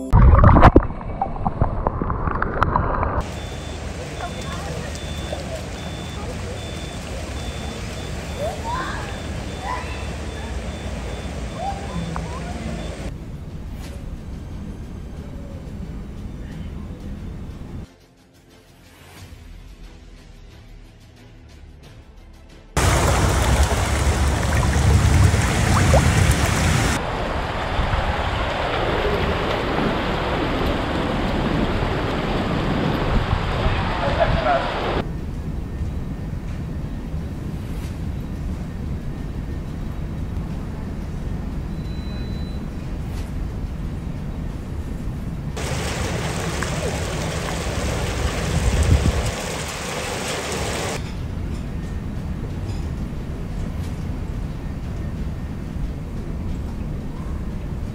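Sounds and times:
vehicle rumble: 0:00.0 - 0:17.9, 0:22.8 - 0:57.9
floodwater rushing and splashing: 0:00.1 - 0:13.1, 0:22.8 - 0:35.0, 0:45.6 - 0:51.0
low traffic rumble: 0:00.4 - 0:17.9, 0:22.8 - 0:57.9
heavy rain: 0:03.1 - 0:13.1, 0:22.8 - 0:35.0, 0:45.6 - 0:51.0.

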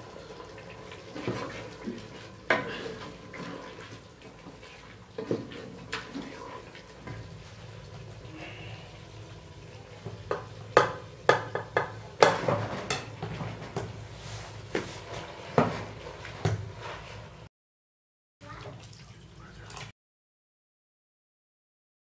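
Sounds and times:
spoon knocking on metal pot: 0:10.3 - 0:13.1.

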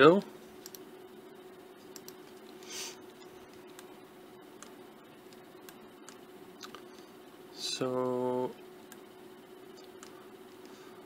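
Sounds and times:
steady low hum: 0:00.0 - 0:11.0
computer mouse clicks: 0:00.6 - 0:00.8, 0:01.9 - 0:02.6.

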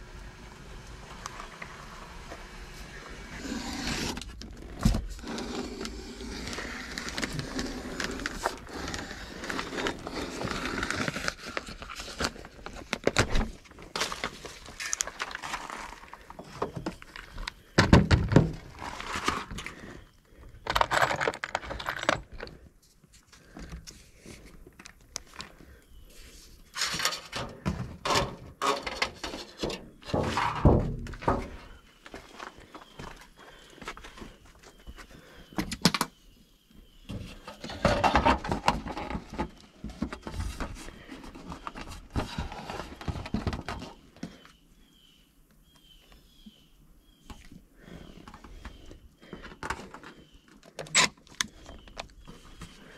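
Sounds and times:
plastic sheeting crinkling: 0:06.2 - 0:16.3.

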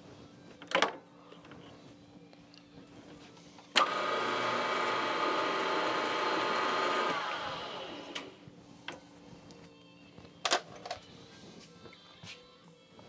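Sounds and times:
milling machine motor whine: 0:03.8 - 0:08.4.

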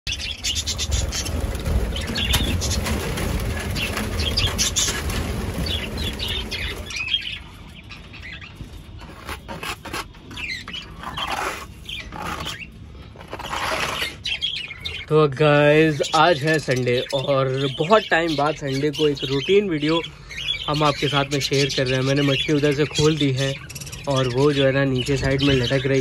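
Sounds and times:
wings fluttering: 0:00.1 - 0:14.4
budgerigars chirping and chattering: 0:00.1 - 0:26.0.

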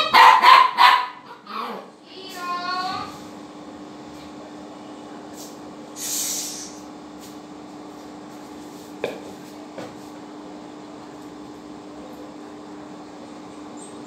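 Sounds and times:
short hiss: 0:06.0 - 0:06.8.

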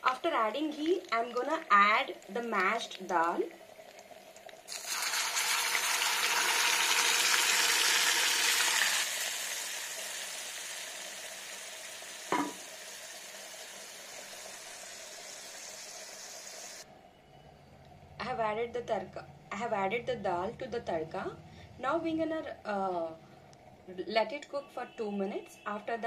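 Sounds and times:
hot oil sizzling: 0:00.0 - 0:16.9
single knock: 0:12.3 - 0:12.6.

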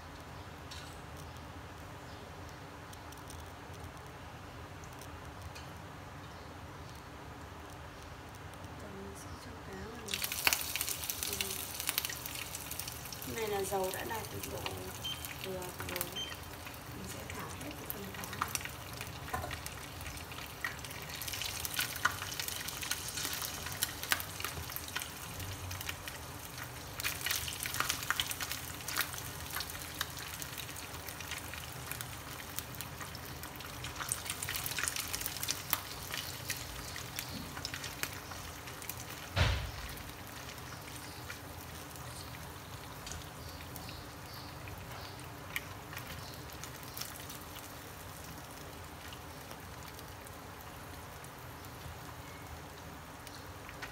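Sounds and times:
fish sizzling in hot oil: 0:09.7 - 0:53.9
loud knock: 0:39.4 - 0:39.8.

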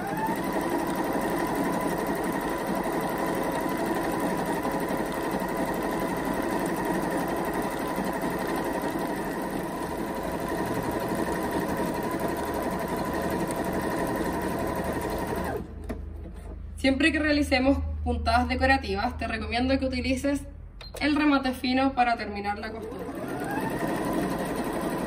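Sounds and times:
sewing machine running: 0:00.0 - 0:15.8, 0:22.7 - 0:25.0.

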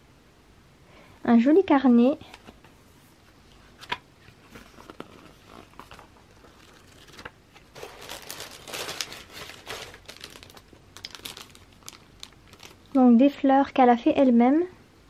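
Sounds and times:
plastic packaging crinkling: 0:04.5 - 0:13.2.

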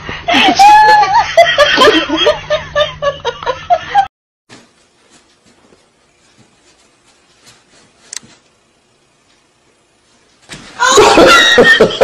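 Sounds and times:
person laughing hard: 0:00.3 - 0:04.1, 0:10.8 - 0:12.0.

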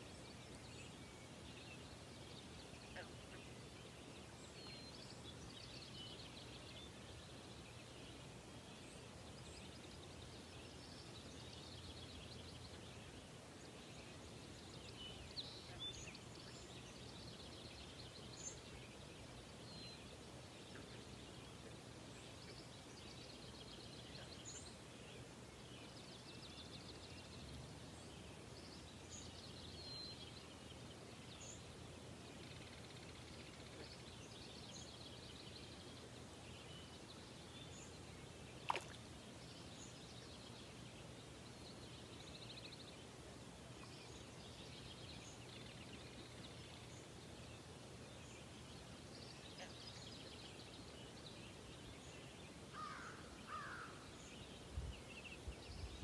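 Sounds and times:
songbirds trilling and chirping: 0:00.0 - 0:56.0.

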